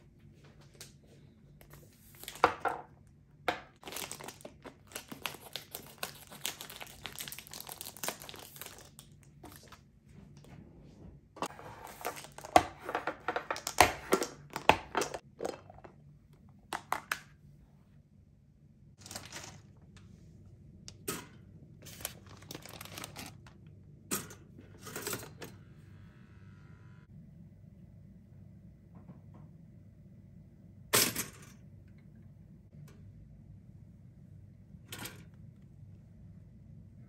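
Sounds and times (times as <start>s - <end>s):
plastic crinkling: 3.8s - 9.8s, 19.0s - 19.9s, 21.8s - 23.7s.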